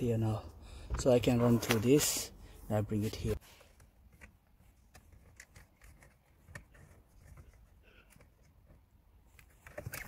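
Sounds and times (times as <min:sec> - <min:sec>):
hands clicking and rustling on plastic: 0:03.7 - 0:10.0.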